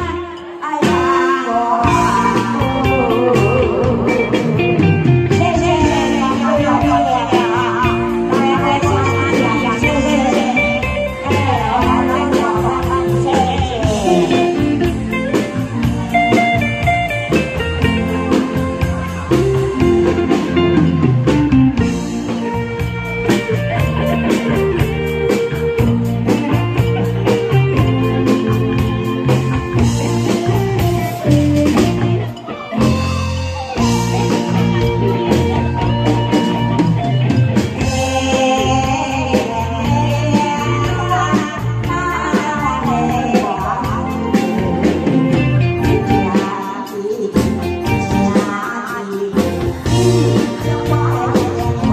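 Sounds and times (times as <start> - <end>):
woman singing into a microphone: 0.0 - 15.4, 37.8 - 51.9
electric guitar: 0.0 - 51.9
steady beat: 1.9 - 38.4.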